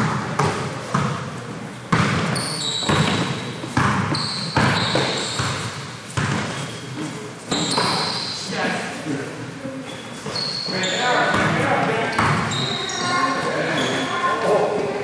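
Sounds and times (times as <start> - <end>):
basketball bouncing on gym floor: 0.0 - 1.3, 1.9 - 6.7, 11.2 - 13.0
short high squeaks: 2.4 - 3.2, 4.1 - 5.5, 7.5 - 8.5, 9.8 - 11.2, 12.5 - 14.2.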